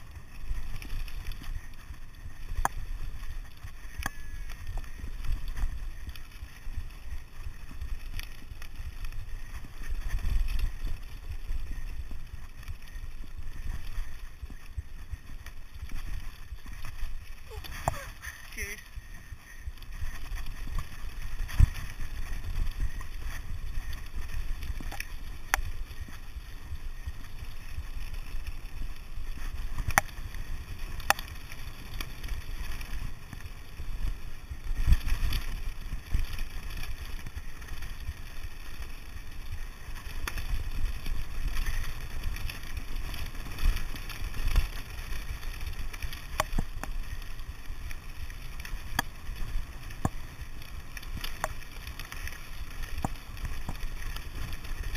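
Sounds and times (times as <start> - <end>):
bike tyres rumbling on gravel: 0.0 - 54.9
bike knocking on stones: 46.3 - 47.0, 48.8 - 50.5, 51.1 - 52.2, 52.9 - 54.4.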